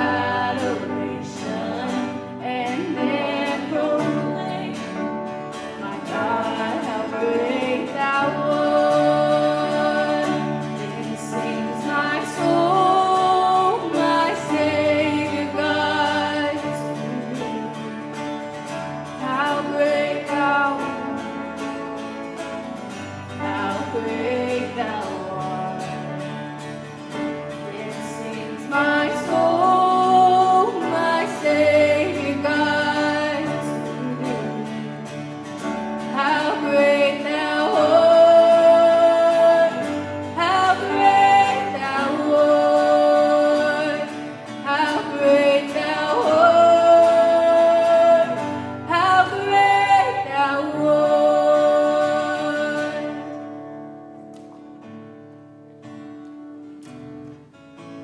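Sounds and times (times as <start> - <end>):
voices singing into microphones: 0.0 - 4.9, 5.8 - 17.5, 27.7 - 34.9, 36.1 - 53.3
acoustic guitar strumming: 0.0 - 58.0.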